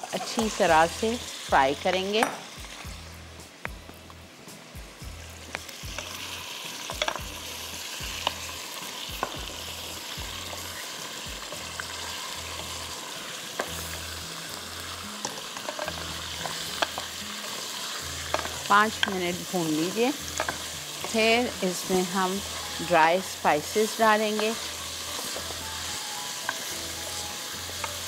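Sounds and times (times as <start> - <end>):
meat sizzling in hot oil: 0.0 - 28.0
wooden spatula clicking on pot: 20.4 - 21.2.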